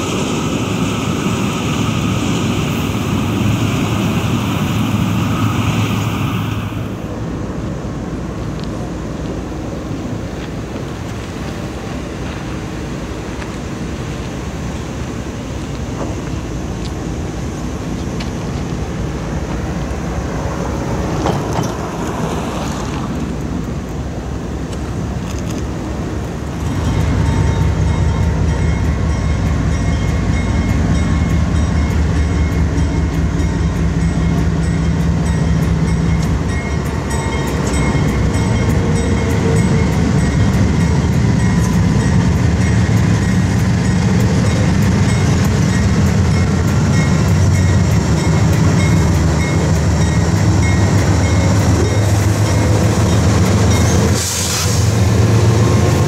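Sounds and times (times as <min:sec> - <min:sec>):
locomotive engines droning: 0:00.0 - 0:56.0
wheels clicking on rails: 0:21.0 - 0:56.0.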